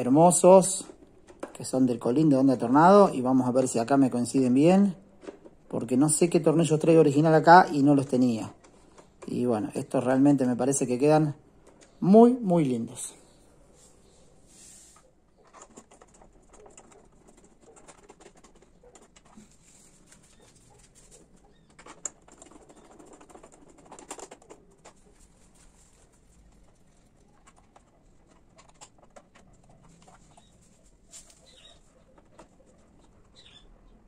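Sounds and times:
bird calling faintly: 29.6s - 34.0s.

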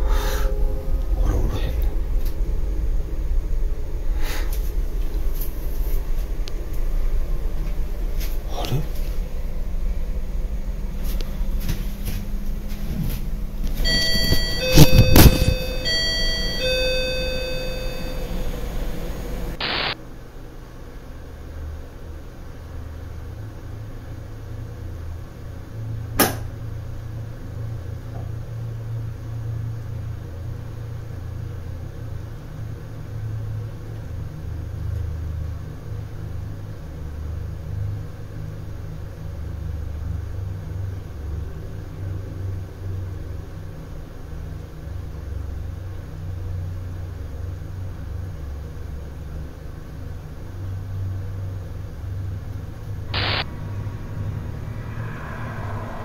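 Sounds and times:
low rumble: 0.0s - 20.0s, 52.3s - 56.0s.

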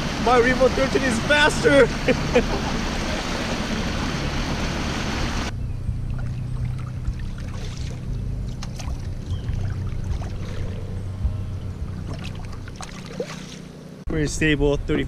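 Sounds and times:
paddle dipping and dripping: 0.0s - 14.0s
motorboat speeding through water: 0.0s - 14.1s
small splashes: 6.1s - 11.1s, 11.9s - 13.8s.

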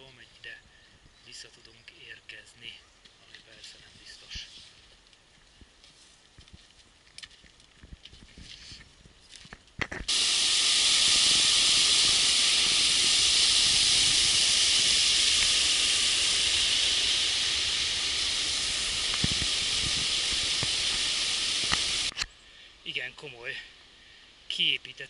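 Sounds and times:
stream rushing over boulders: 15.3s - 22.1s.

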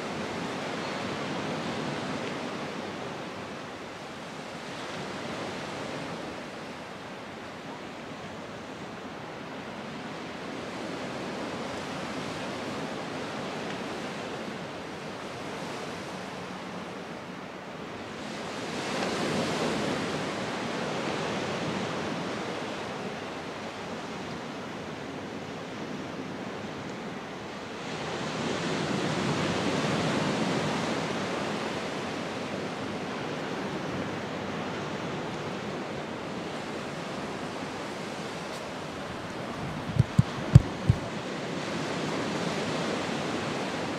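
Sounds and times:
waves breaking: 25.6s - 43.9s
surf washing onto beach: 26.9s - 43.9s.

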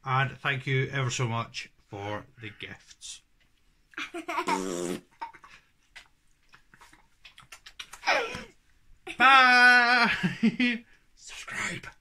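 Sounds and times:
toddler and man laughing: 4.0s - 5.5s.

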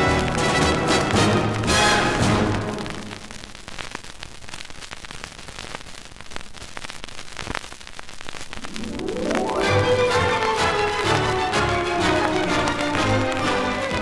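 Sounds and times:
music: 0.0s - 3.2s, 8.6s - 14.0s
vinyl crackles and pops: 0.0s - 14.0s
vinyl surface hiss: 0.0s - 14.0s.

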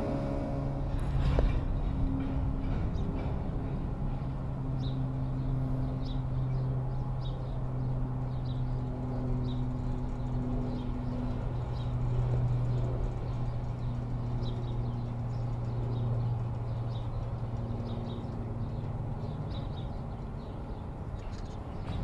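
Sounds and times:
freight train rumbling: 0.0s - 22.0s.

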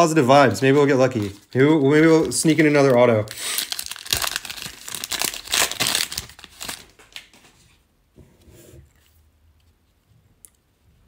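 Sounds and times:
foil wrapper crinkling and tearing: 0.5s - 7.2s.

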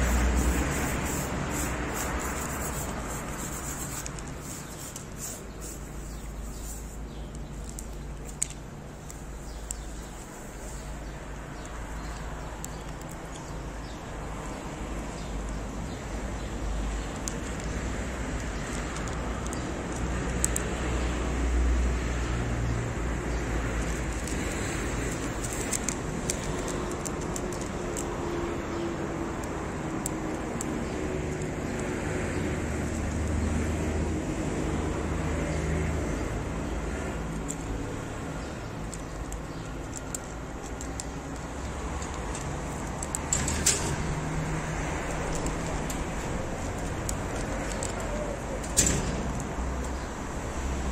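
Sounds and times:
street traffic noise: 0.0s - 50.9s
cat crunching dry kibble: 23.8s - 28.1s, 38.8s - 43.3s.

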